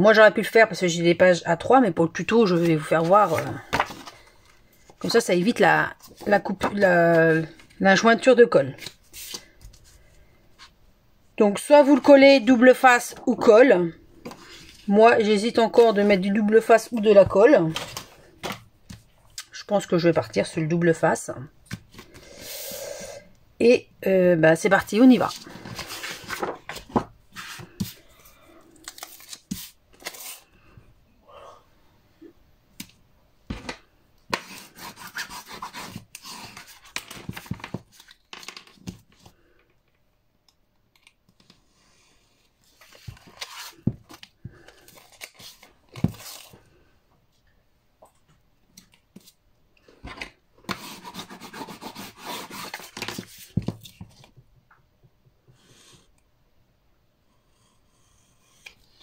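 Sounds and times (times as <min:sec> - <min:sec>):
tape and paper rustling and tearing: 0:28.8 - 0:30.5, 0:42.7 - 0:46.6.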